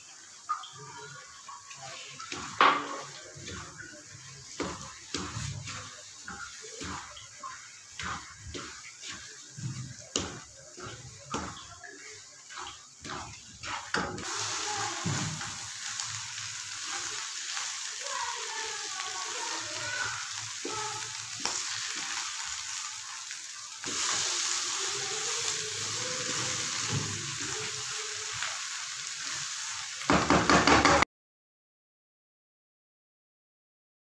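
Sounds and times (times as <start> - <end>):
food sizzling in a pan: 0.0 - 31.0
wooden spoon stirring and scraping: 1.7 - 16.0.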